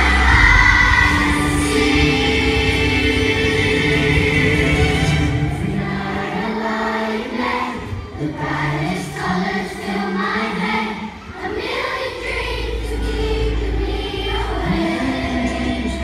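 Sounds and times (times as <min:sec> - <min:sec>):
steady low bass: 0:00.0 - 0:06.0
children's choir singing: 0:00.0 - 0:16.0.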